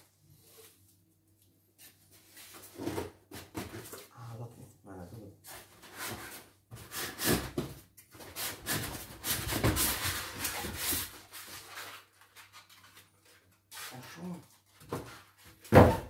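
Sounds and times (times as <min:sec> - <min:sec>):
foam blocks scraping cardboard: 0:05.5 - 0:12.0.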